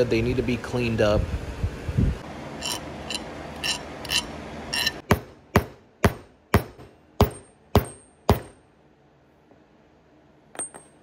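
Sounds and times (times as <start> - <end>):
hammer striking metal punch: 4.8 - 8.7.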